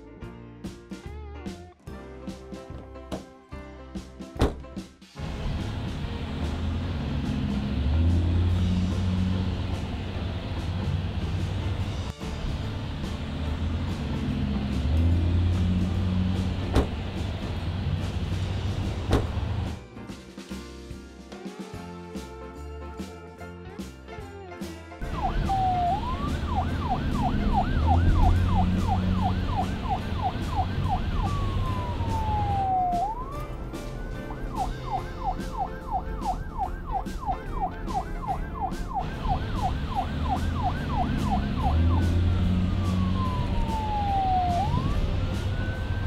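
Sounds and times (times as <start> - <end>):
police siren yelp and wail: 25.0 - 46.0.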